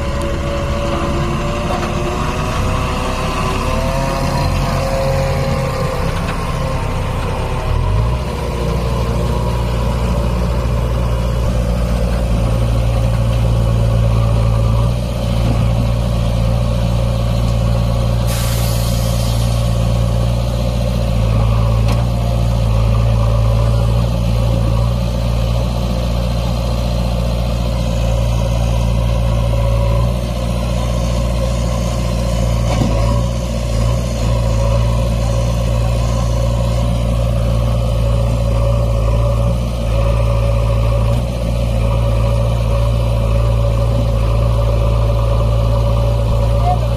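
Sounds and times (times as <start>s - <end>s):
diesel engines running: 0.0s - 46.9s
air hiss: 18.2s - 19.6s.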